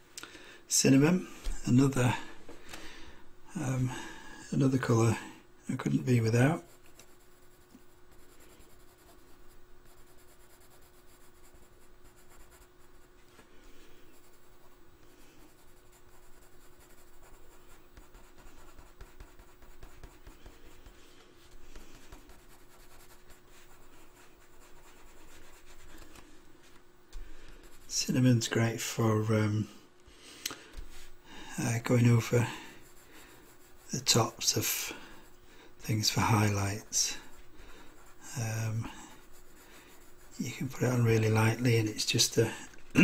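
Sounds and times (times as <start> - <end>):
faint steady hum: 0.0 - 43.0
pencil scratching on paper: 6.2 - 13.2, 14.0 - 26.2, 27.5 - 28.5, 31.8 - 35.3, 36.0 - 41.7.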